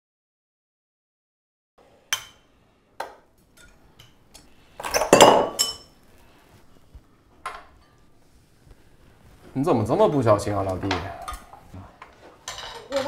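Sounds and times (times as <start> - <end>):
glassware clinking: 3.6 - 6.0, 12.4 - 13.0
wine glass breaking: 4.8 - 5.9.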